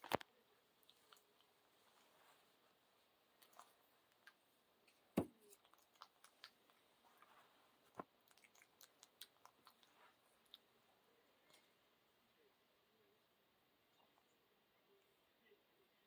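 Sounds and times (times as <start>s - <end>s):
faint clicks and rustles of cloth: 0.0s - 12.2s.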